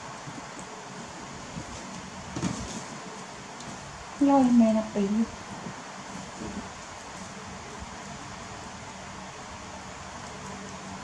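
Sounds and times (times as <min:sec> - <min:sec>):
faint low hum: 0:00.0 - 0:11.0
room noise hiss: 0:00.0 - 0:11.0.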